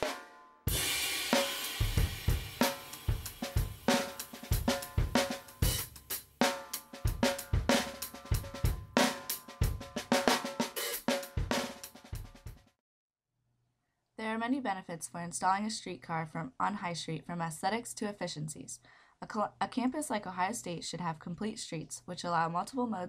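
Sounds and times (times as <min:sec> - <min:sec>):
cymbal crash: 0:00.0 - 0:04.4
drum beat: 0:00.0 - 0:12.8.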